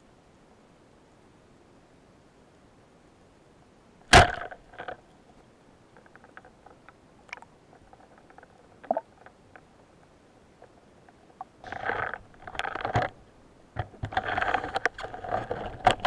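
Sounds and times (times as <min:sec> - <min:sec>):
speargun firing underwater: 0:04.1 - 0:04.6.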